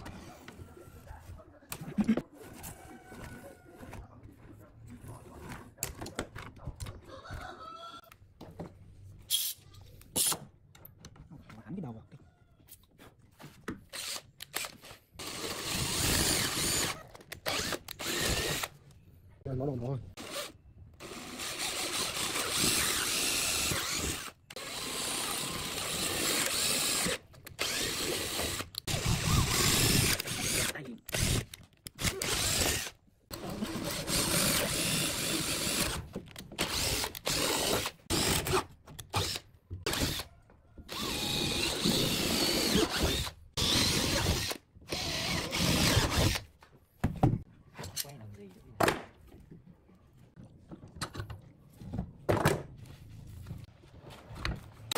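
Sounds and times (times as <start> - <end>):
power drill boring into wood: 13.9 - 18.7, 20.2 - 36.0, 36.6 - 40.3, 40.9 - 46.5.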